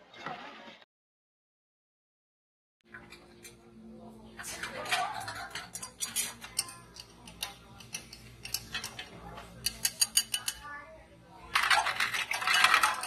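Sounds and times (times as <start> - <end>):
spoon clinking against glass: 9.6 - 10.6.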